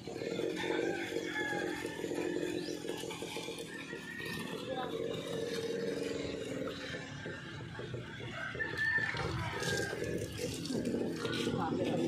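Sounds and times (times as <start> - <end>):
rooster crowing: 0.3 - 2.8, 8.3 - 10.7.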